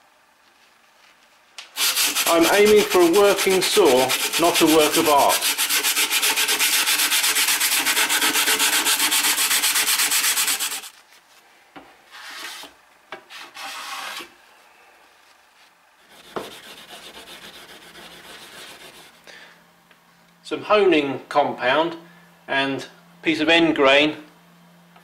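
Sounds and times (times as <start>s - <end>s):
wooden block rubbing on metal: 1.8s - 10.9s, 16.0s - 19.2s
sandpaper rasping on steel: 1.8s - 11.0s, 13.3s - 14.3s, 16.0s - 19.2s.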